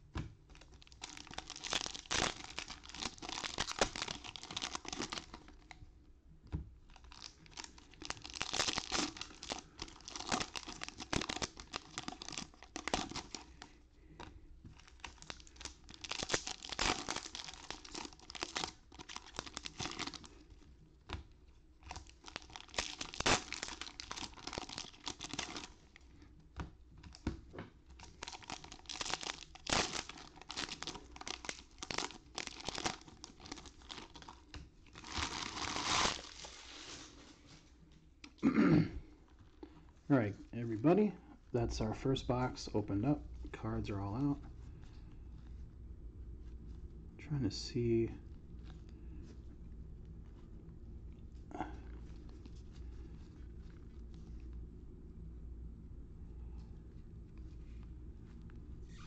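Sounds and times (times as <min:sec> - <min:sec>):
foil wrappers tearing and crinkling: 0:00.5 - 0:05.7, 0:06.9 - 0:13.6, 0:14.8 - 0:20.6, 0:21.9 - 0:26.0, 0:28.0 - 0:37.2.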